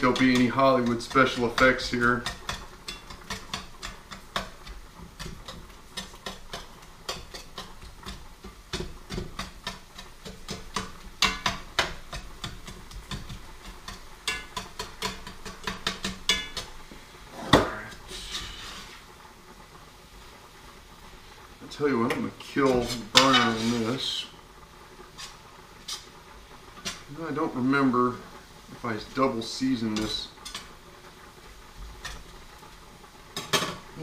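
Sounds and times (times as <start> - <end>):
utensil scraping a skillet: 0.0 - 19.2, 22.4 - 34.0.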